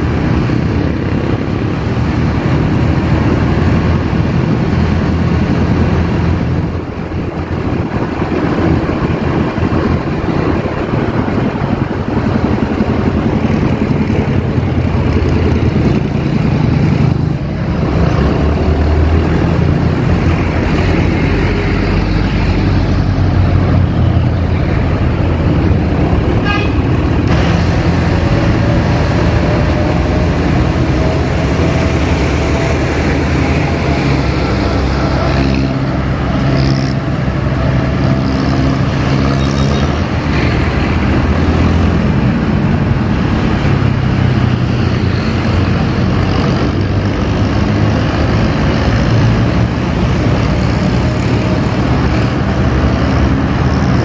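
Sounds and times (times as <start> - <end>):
traffic engine and road rumble: 0.0 - 54.0
short horn toot: 26.4 - 26.9.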